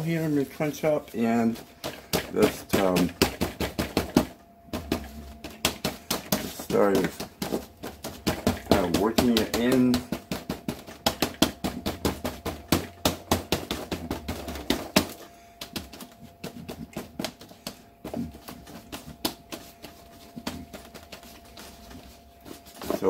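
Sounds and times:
paper towel dabbing wet paint: 0.0 - 23.0.

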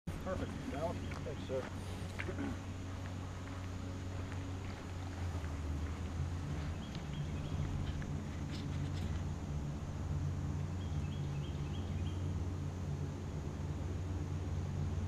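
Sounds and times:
bird chirping: 0.1 - 2.8, 4.7 - 9.2, 10.6 - 12.4
steady low rumble: 0.1 - 15.0.

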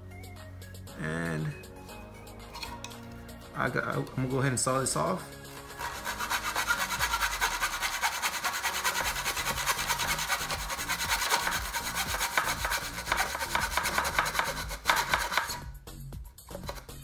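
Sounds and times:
hacksaw sawing wood: 5.5 - 15.6.

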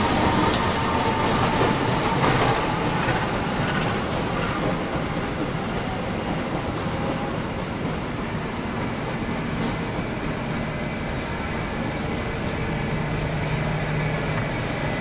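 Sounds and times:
train wheels roaring on track: 0.0 - 15.0
high wheel squeal: 0.7 - 9.8.

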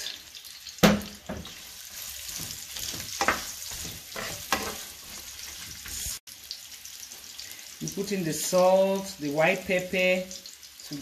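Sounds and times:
vegetables sizzling in oil: 0.0 - 11.0
wooden spatula scraping pan: 1.3 - 6.2.

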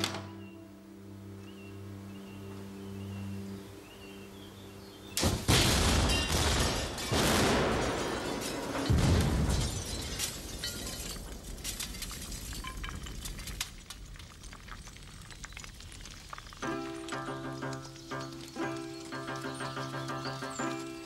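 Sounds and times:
building explosion: 5.2 - 11.4
falling debris clattering: 5.2 - 21.0.

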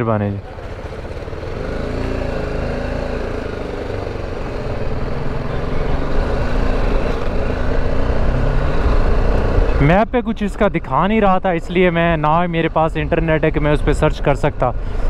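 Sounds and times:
motorcycle engine running: 0.4 - 9.9.

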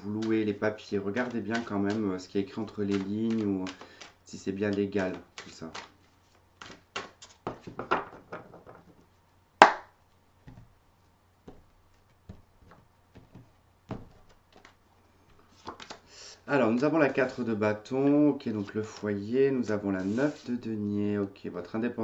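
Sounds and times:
cards being shuffled: 0.0 - 9.8, 11.4 - 16.1, 18.5 - 20.6
card sharp crack: 2.6 - 4.2
deck knocking on wooden table: 7.0 - 9.0, 12.3 - 14.3.

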